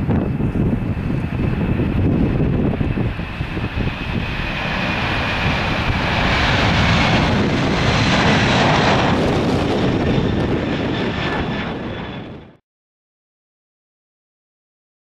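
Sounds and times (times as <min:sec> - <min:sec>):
jet engine roar: 0:00.0 - 0:12.6.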